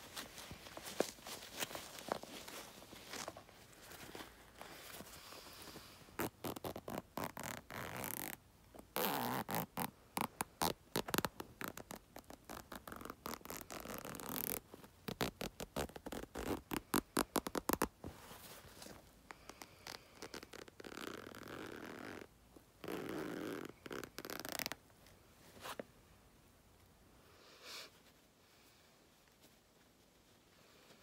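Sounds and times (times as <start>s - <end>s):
scratching and rubbing on microphone: 6.2s - 19.0s, 19.9s - 24.8s.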